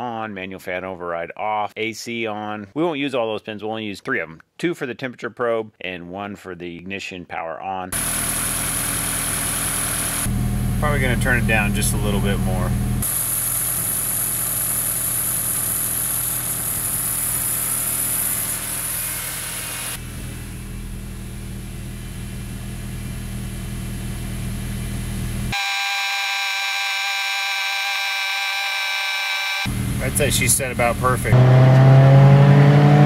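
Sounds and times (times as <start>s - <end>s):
car engine idling: 8.0s - 25.5s.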